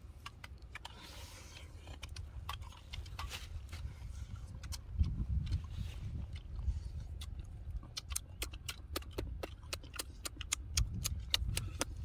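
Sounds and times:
lip-smacks and chewing: 0.0s - 12.0s
low rumble: 0.0s - 12.0s.

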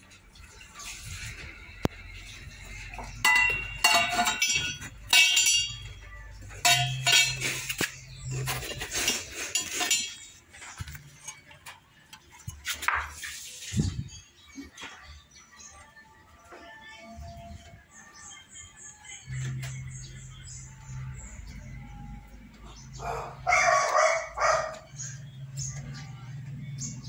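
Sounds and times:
metal pieces clinking: 3.2s - 5.9s.

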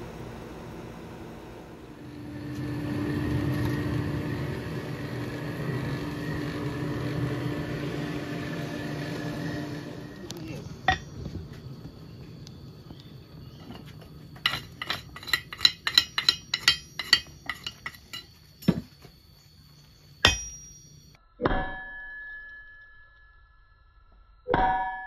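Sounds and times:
hammer striking steel on anvil: 10.8s - 11.1s, 14.4s - 18.8s, 20.2s - 23.0s, 24.5s - 25.0s.

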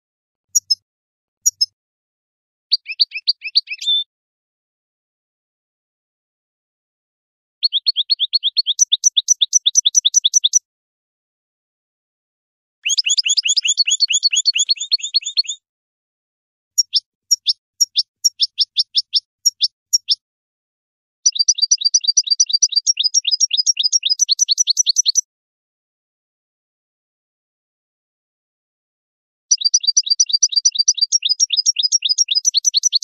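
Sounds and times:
bird chirping: 0.5s - 0.8s, 1.4s - 1.8s, 2.7s - 4.1s, 7.6s - 10.6s, 12.8s - 15.6s, 16.8s - 20.2s, 21.2s - 25.3s, 29.6s - 33.0s.

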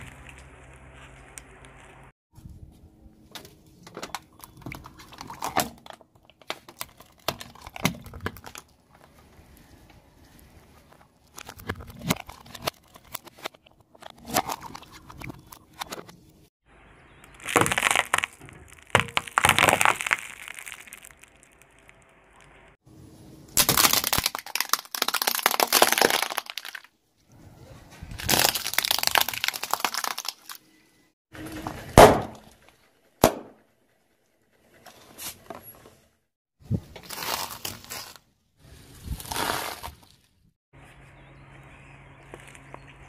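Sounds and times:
car tyre crushing objects: 3.3s - 9.4s, 10.8s - 16.2s, 17.2s - 22.8s, 23.5s - 26.9s, 28.1s - 33.9s, 36.9s - 38.3s
sharp crack: 17.2s - 22.8s, 23.5s - 26.9s, 31.9s - 32.6s, 33.2s - 33.7s.

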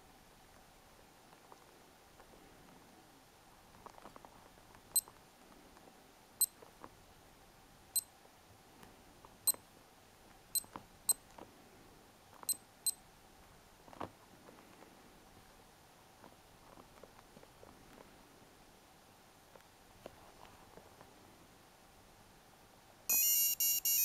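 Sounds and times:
digital watch beeping: 23.1s - 24.0s.

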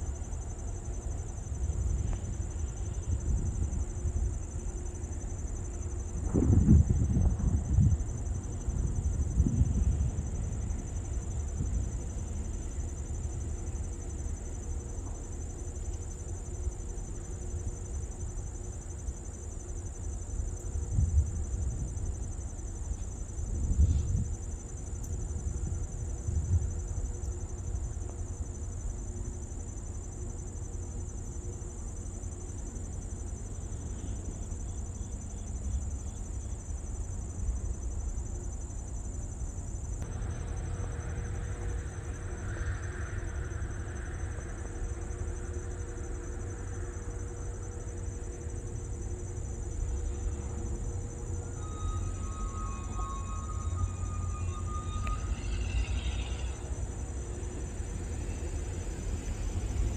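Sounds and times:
insects trilling: 0.0s - 59.9s
low rumble: 40.0s - 59.9s.

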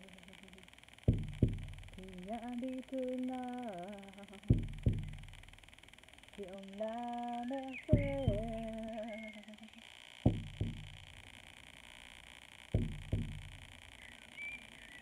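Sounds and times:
frame drum beats: 1.1s - 2.1s, 4.5s - 5.4s, 7.9s - 8.8s, 10.3s - 11.2s, 12.8s - 13.8s
woman singing a held note: 6.4s - 9.8s.

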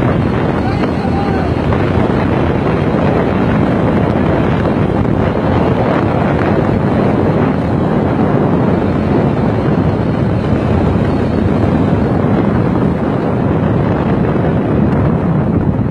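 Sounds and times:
vehicles moving at highway speed: 0.0s - 15.9s
wind buffeting microphone: 0.0s - 15.9s.

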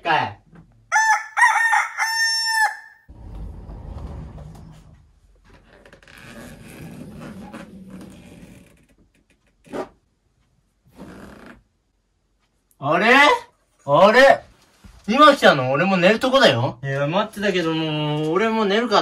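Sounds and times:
rooster crowing: 0.9s - 3.1s
low rumbling noise: 3.1s - 5.3s.

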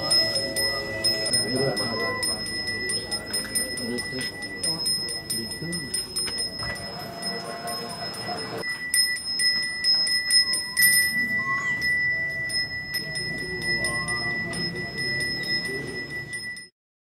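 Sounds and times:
hand bell ringing: 0.0s - 16.7s.

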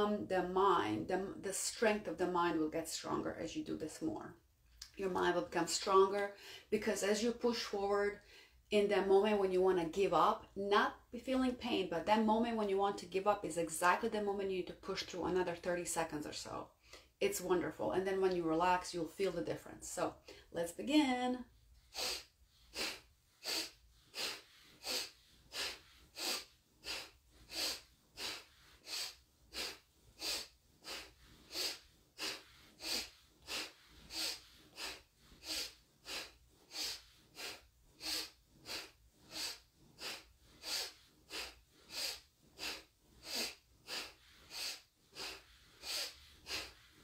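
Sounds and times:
woman breathing sharply through nose: 6.4s - 6.7s, 21.8s - 47.0s.

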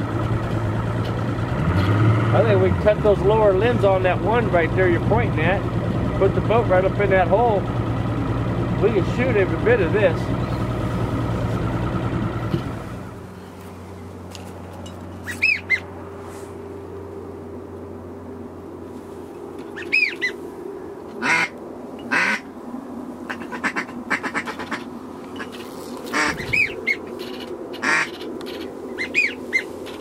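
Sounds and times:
low motor hum: 0.0s - 30.0s
duck chatter: 15.2s - 15.8s, 19.8s - 20.4s, 21.2s - 22.5s, 23.3s - 30.0s
ducks whistling: 15.2s - 15.9s, 19.7s - 20.4s, 23.3s - 30.0s
ducks quacking: 21.2s - 22.5s, 23.3s - 30.0s.

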